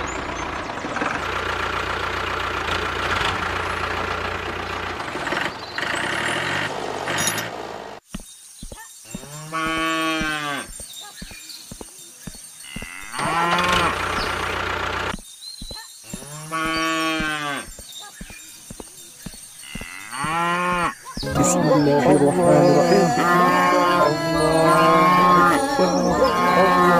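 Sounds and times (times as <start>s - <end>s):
tractor engine running: 0.0s - 8.0s, 12.8s - 15.2s
cow mooing: 12.7s - 14.1s, 16.2s - 17.7s, 19.6s - 26.9s.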